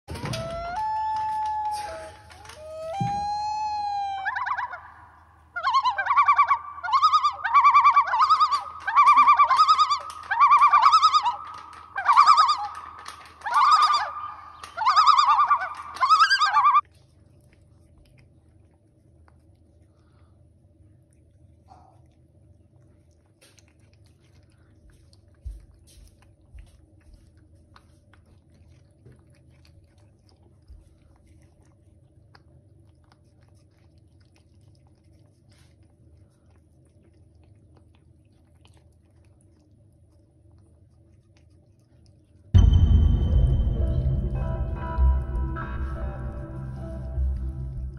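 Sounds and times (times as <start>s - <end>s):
fast-warbling whistle-like tone: 13.4s - 16.8s
cat chewing and licking: 16.8s - 42.6s.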